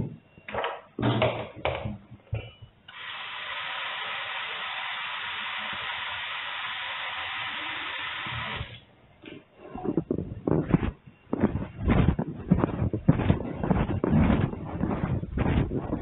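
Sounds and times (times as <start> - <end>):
steady hiss: 2.9 - 8.8.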